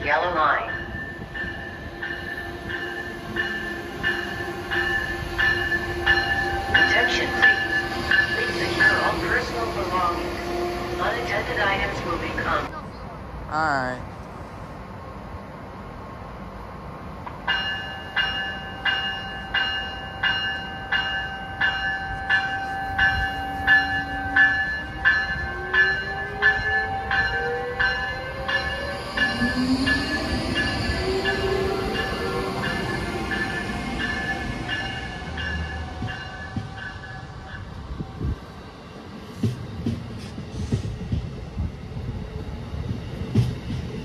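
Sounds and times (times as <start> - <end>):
locomotive bell ringing: 0.1 - 10.2, 17.5 - 37.8
locomotive whine rising in pitch: 27.9 - 38.3.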